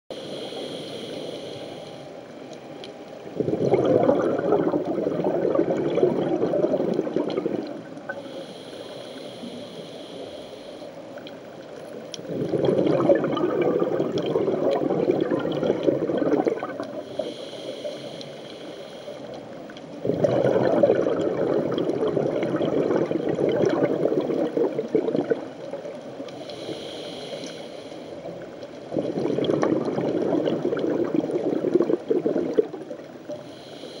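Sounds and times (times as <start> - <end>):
regulator inhalation hiss: 0.1 - 2.3, 8.1 - 11.1, 16.9 - 19.5, 26.3 - 28.4, 33.3 - 34.0
exhaled bubbles underwater: 3.2 - 8.3, 11.9 - 17.3, 19.2 - 26.5, 28.2 - 33.4.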